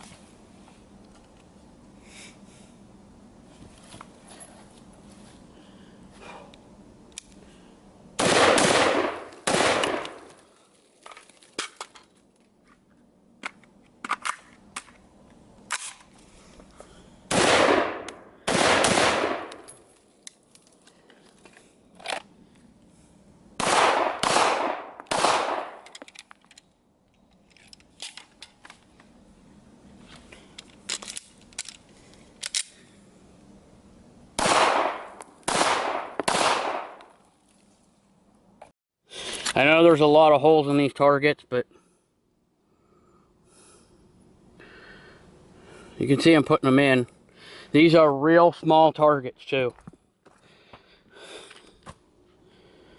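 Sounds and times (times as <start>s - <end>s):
gun handling clicks: 7.1s - 7.4s, 15.6s - 16.1s, 25.0s - 28.8s, 30.6s - 32.8s
gunshots: 8.2s - 10.3s, 17.3s - 19.7s, 23.6s - 25.8s, 34.4s - 37.0s.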